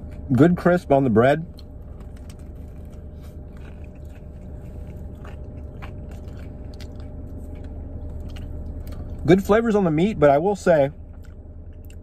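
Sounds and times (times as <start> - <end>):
chewing crunchy bread: 0.0 - 9.6, 10.9 - 12.0
steady low hum: 0.0 - 12.0.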